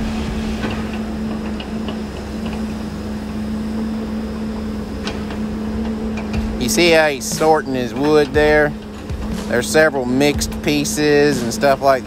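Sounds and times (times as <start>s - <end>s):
low rumble: 0.0s - 2.0s
steady machine hum: 0.0s - 12.0s.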